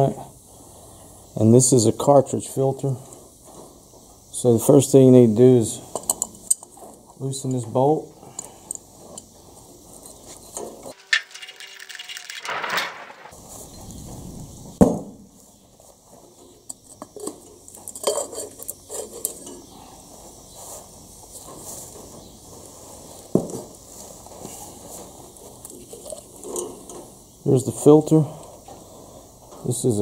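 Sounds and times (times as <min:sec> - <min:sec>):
metallic clinks and clatter: 0:10.5 - 0:13.3
sharp metal clank: 0:10.9 - 0:13.4.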